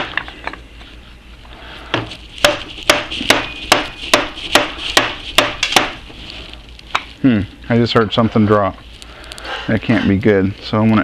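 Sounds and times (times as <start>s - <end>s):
rubber mallet striking metal cap: 2.4s - 6.0s.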